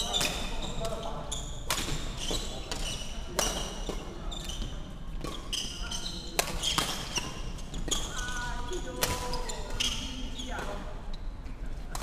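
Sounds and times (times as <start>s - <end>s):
shoes squeaking on wooden floor: 0.2s - 11.3s
racket striking shuttlecock: 1.6s - 2.8s.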